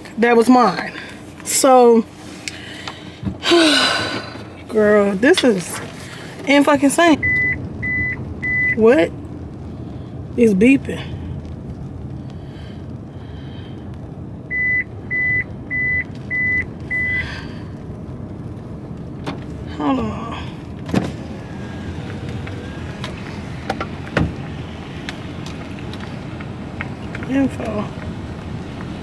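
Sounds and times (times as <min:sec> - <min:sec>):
low car rumble: 0:00.0 - 0:29.0
dashboard warning chime beeps: 0:07.2 - 0:08.8, 0:14.5 - 0:17.2.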